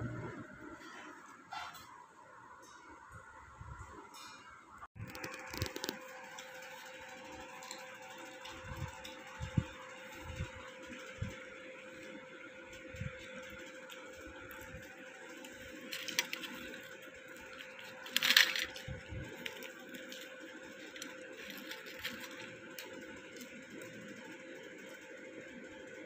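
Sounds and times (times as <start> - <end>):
fried snack crackling as broken: 5.0 - 6.5, 15.4 - 23.9.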